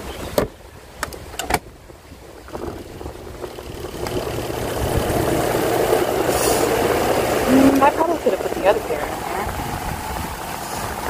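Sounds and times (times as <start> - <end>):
spin-dryer motor humming: 3.2 - 10.3.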